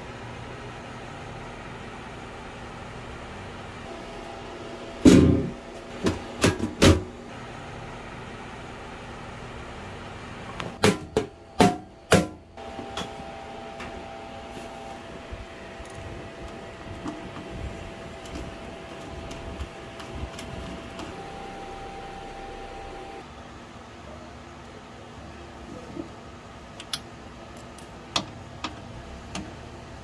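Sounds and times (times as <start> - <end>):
faint steady hum: 7.1 - 30.0.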